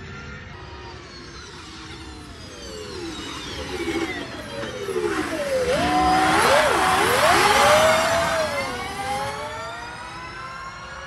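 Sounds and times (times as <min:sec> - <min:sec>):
electric car motor whine: 0:00.0 - 0:11.0
tyre and road noise: 0:04.1 - 0:10.2.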